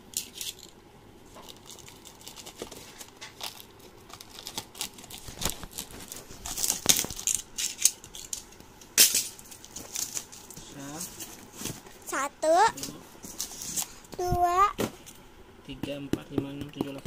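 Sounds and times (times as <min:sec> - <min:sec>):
packing tape tearing: 0:01.5 - 0:08.4.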